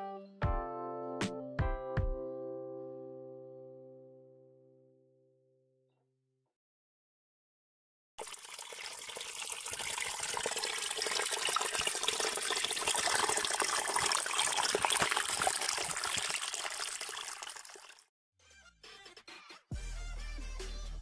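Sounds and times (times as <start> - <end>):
water trickling over rocks: 8.2 - 18.1.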